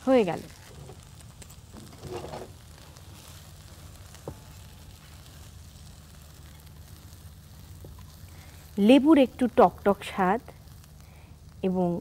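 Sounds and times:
spatula stirring in a wok: 0.4 - 8.8.

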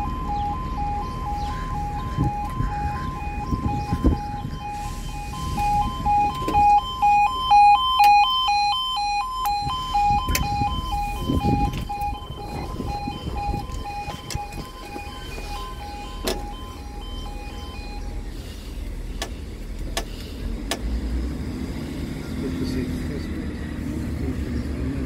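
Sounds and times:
two-tone crossing alarm: 0.0 - 18.7
low rumble: 0.0 - 19.9.

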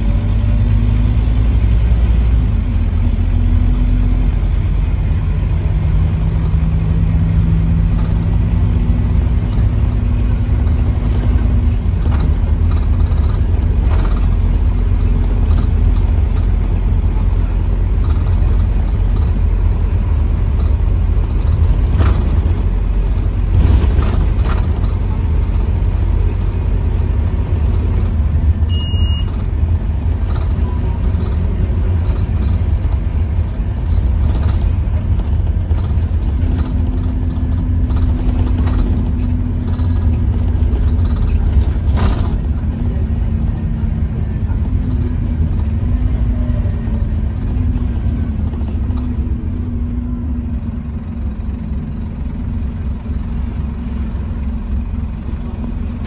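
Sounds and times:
bus engine droning: 0.0 - 56.0
road noise: 0.0 - 56.0
knocks and rattles: 6.2 - 28.2
short high beep: 28.7 - 29.3.

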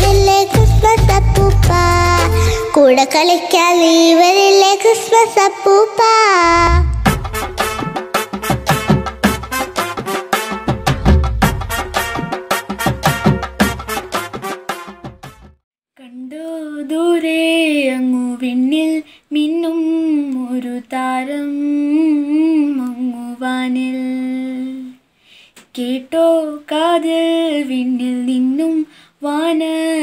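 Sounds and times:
girl singing solo: 0.0 - 7.0.

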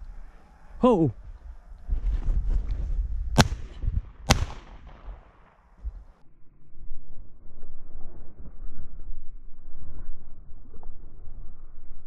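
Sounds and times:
shotgun shots echoing: 3.4 - 5.8.

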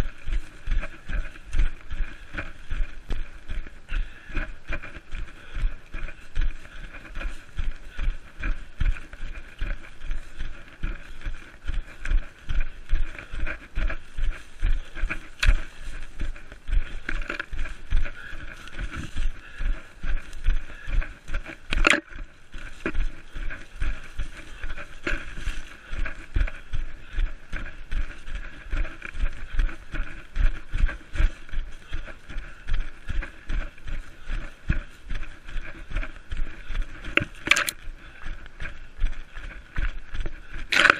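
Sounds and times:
vegetation rustling: 9.0 - 27.2.

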